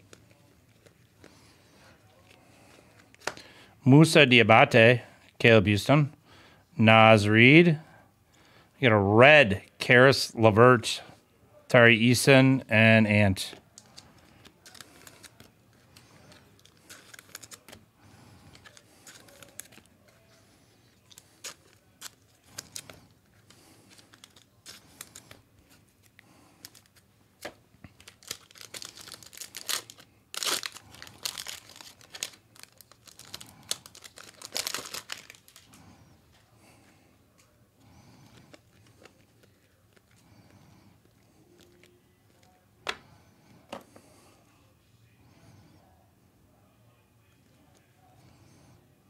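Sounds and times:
foil wrappers crinkling and tearing: 0:13.7 - 0:35.9.

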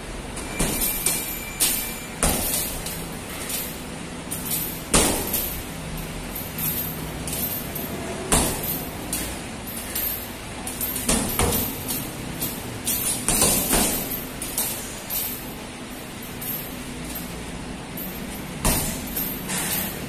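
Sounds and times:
gloves punching heavy bag: 0:00.4 - 0:03.6, 0:04.4 - 0:05.7, 0:06.6 - 0:09.3, 0:09.9 - 0:14.9, 0:18.2 - 0:20.0.

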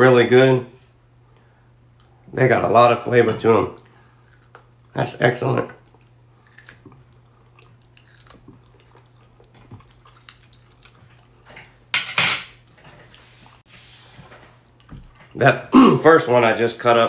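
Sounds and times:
low steady hum: 0:00.0 - 0:17.0
cutlery clattering: 0:11.6 - 0:12.6.

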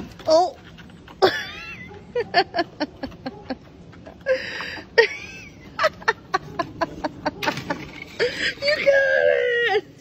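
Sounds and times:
dog claws and stick clicking: 0:00.0 - 0:01.3.

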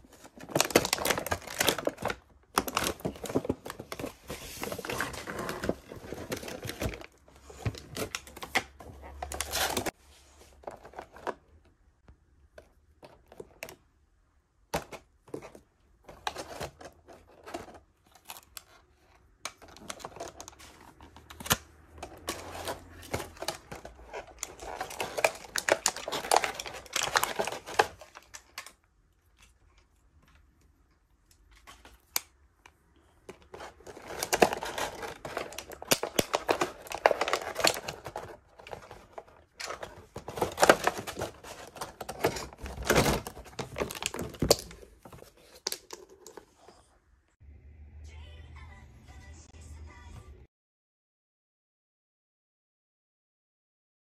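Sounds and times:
plastic packaging crinkling: 0:00.0 - 0:10.0, 0:19.6 - 0:28.8, 0:33.4 - 0:46.4.

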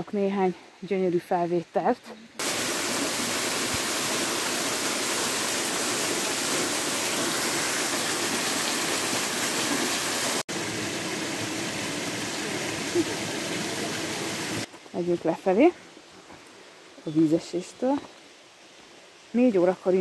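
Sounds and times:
waterfall rushing: 0:02.4 - 0:14.7.

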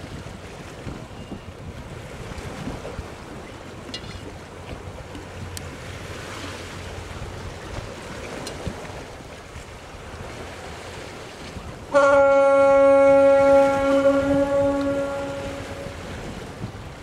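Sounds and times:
sea noise: 0:00.0 - 0:17.0
wind: 0:00.0 - 0:17.0
yacht horn blast: 0:11.9 - 0:16.4.

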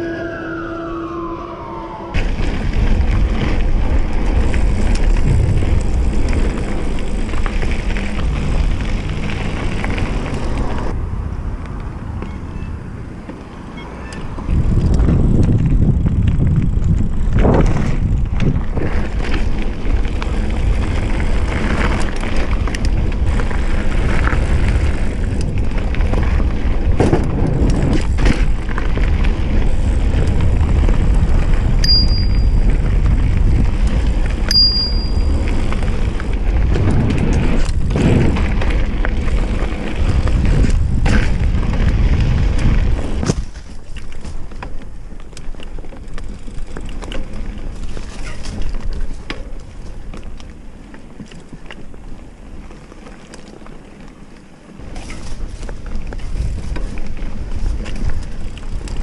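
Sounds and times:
bike tyre rumble on dirt: 0:01.7 - 0:59.0
wind buffeting microphone: 0:02.1 - 0:52.6, 0:54.8 - 0:59.0
bike knocks and rattles: 0:14.3 - 0:52.2, 0:54.7 - 0:59.0.

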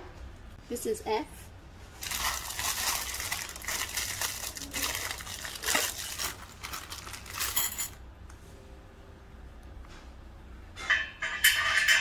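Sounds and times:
plastic bag crinkling: 0:01.9 - 0:08.0.

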